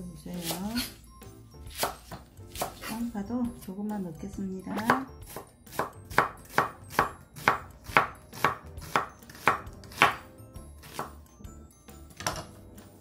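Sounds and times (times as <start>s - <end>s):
knife slicing onion on board: 0.3s - 1.0s, 1.7s - 3.1s, 4.8s - 11.2s.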